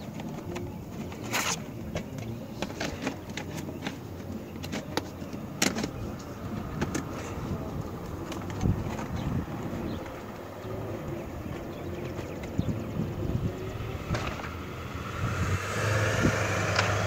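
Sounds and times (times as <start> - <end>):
vinyl panels clicking and clattering: 0.0 - 9.4.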